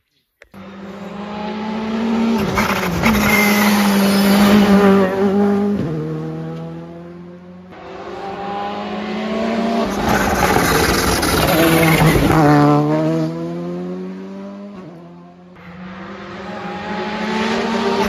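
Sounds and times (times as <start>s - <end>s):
rally car engine passing: 0.6s - 18.0s
second rally car approaching: 0.6s - 18.0s.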